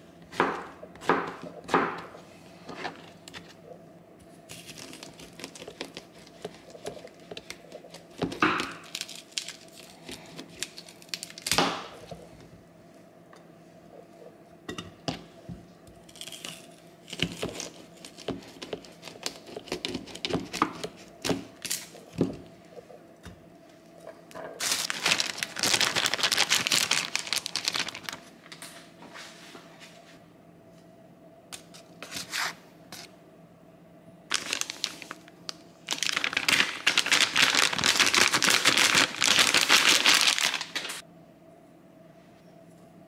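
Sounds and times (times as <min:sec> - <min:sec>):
packaging crinkling and rustling: 0:04.5 - 0:12.0, 0:17.1 - 0:22.0, 0:24.5 - 0:28.6, 0:34.3 - 0:41.0.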